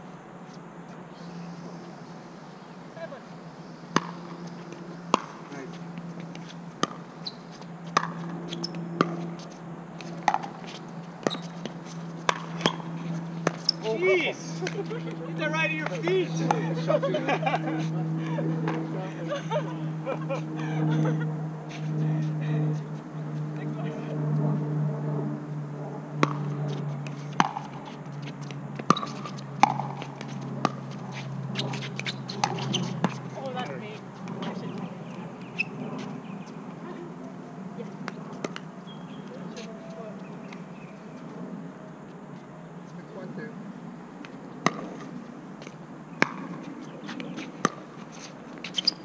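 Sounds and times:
low hum: 0:00.0 - 0:48.4
paddles striking pickleball: 0:03.9 - 0:13.9, 0:26.2 - 0:33.2, 0:38.0 - 0:38.7, 0:44.6 - 0:49.0.

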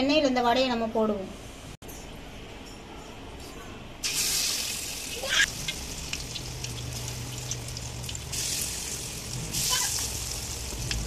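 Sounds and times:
patties sizzling in hot oil: 0:04.0 - 0:11.0.

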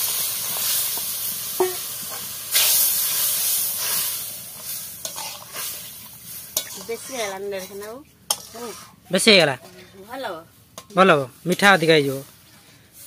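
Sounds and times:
food sizzling in a pan: 0:00.0 - 0:09.6, 0:10.2 - 0:12.4
metal spatula scraping a pan: 0:03.8 - 0:10.0, 0:10.7 - 0:12.2.

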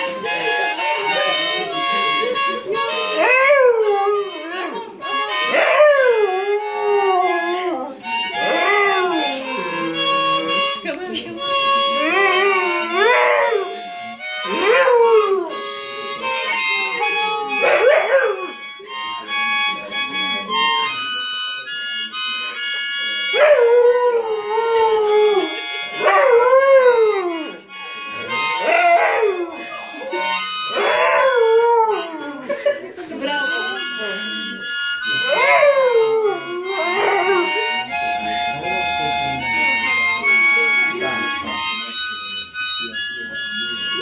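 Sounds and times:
harmonica: 0:00.0 - 0:44.0
dog howling: 0:03.2 - 0:04.7, 0:05.5 - 0:07.9, 0:12.0 - 0:13.7, 0:14.5 - 0:15.6, 0:23.3 - 0:27.4, 0:28.6 - 0:29.6, 0:30.8 - 0:32.4, 0:35.3 - 0:37.5.

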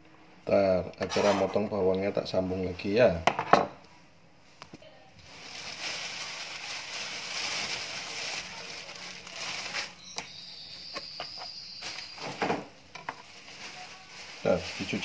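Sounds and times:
plastic bag crinkling: 0:05.2 - 0:15.0.

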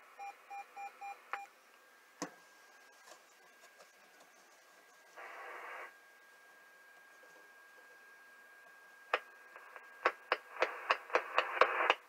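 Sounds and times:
burst of radio hiss: 0:05.2 - 0:05.9.

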